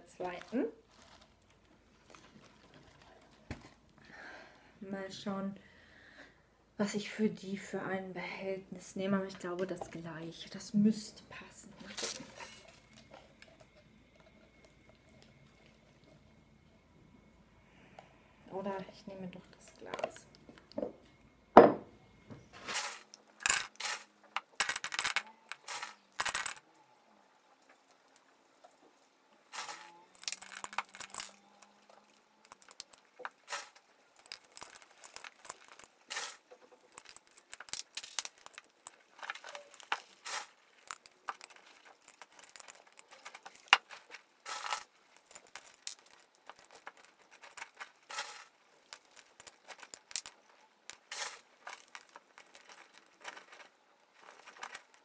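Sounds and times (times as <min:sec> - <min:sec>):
clay pebbles clinking against glass: 0:11.8 - 0:15.7, 0:22.6 - 0:26.7, 0:29.4 - 0:55.0.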